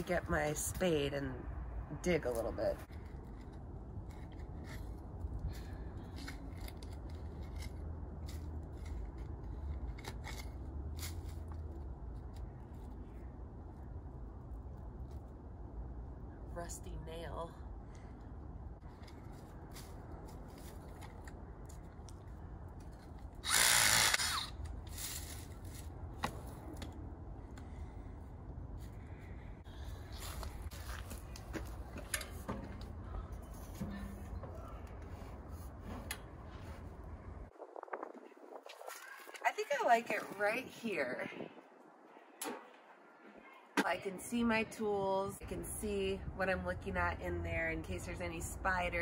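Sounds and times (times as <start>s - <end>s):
steady low hum: 0.0s - 38.5s
cordless drill spinning into soil: 23.4s - 24.6s.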